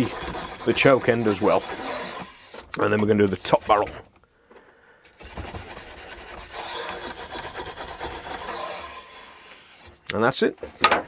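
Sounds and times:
brush scraping inside gun barrel: 0.0s - 4.0s.

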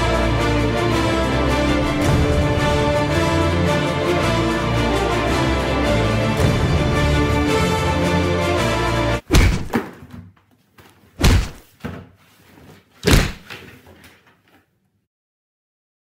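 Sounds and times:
heavy thuds of blows: 9.2s - 9.9s, 11.2s - 11.7s, 13.0s - 13.5s.

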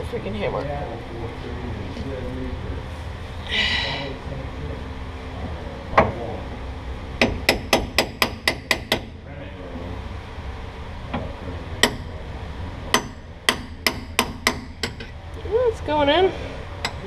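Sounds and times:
hammer tapping metal driver: 13.0s - 15.1s.

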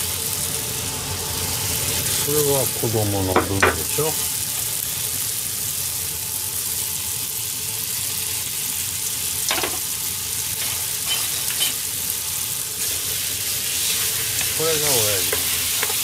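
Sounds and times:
food sizzling in a frying pan: 0.0s - 16.0s.

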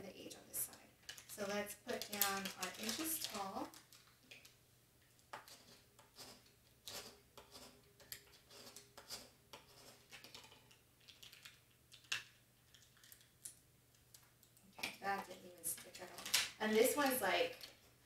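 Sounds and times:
tape crinkling and rustling: 0.7s - 18.0s.

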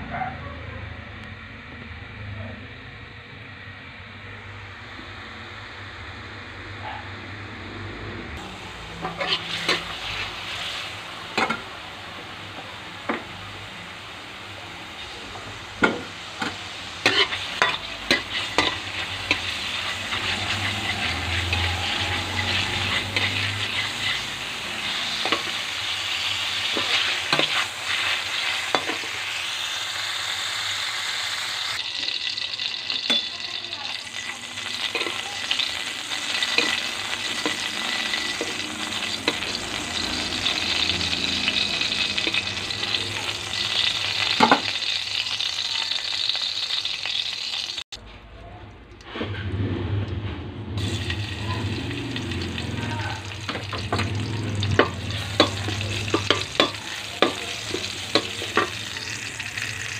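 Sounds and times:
sausage sizzling in oil: 8.4s - 47.9s, 50.8s - 59.9s
metal spatula scraping pan: 9.0s - 10.3s, 17.0s - 29.1s.

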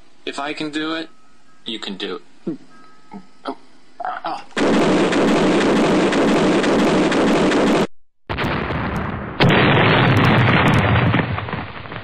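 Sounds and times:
rumbling explosion blast: 8.3s - 12.0s.

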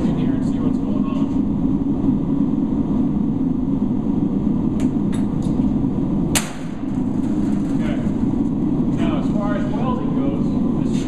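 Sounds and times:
low mechanical rumble: 0.0s - 11.0s
sharp knock: 6.3s - 6.8s.

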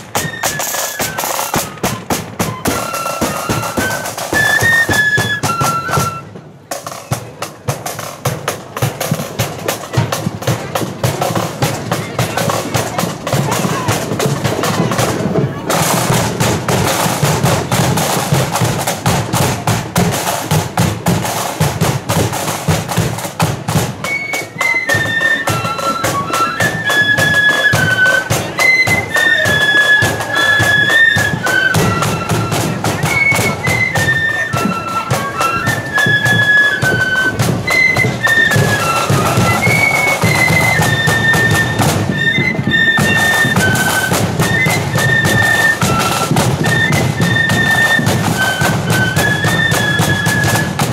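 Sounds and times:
flutes shrill melody: 0.0s - 7.2s, 24.0s - 50.9s
snare and bass drums beating: 0.0s - 50.9s.

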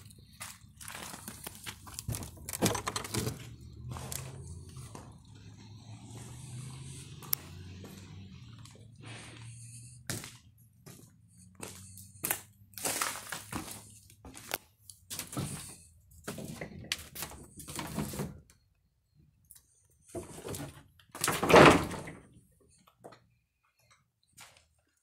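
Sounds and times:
footsteps on rubble and boards: 0.0s - 5.2s, 10.1s - 17.3s.

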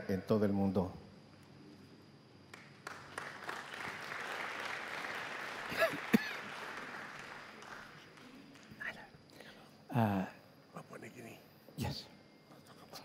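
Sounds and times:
audience applauding: 2.5s - 8.9s.

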